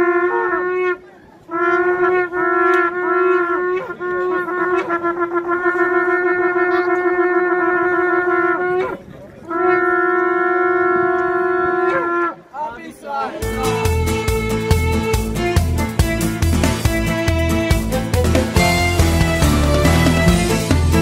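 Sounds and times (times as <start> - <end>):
shofar blasts: 0.0 - 12.5.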